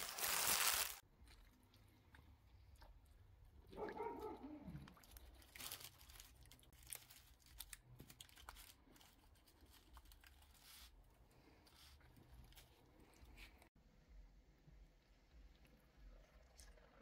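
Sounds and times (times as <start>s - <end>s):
paper and foil crinkling: 0.0s - 1.0s, 5.0s - 13.6s.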